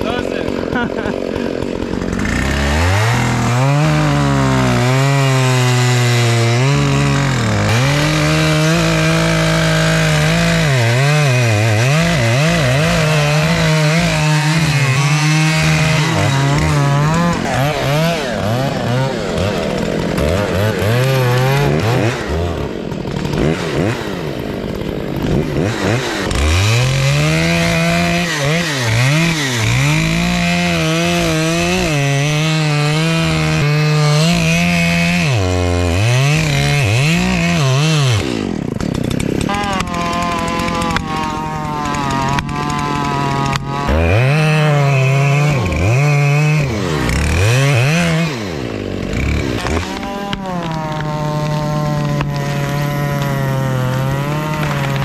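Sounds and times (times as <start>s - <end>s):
chainsaw cutting into tree trunk: 0.0s - 55.0s.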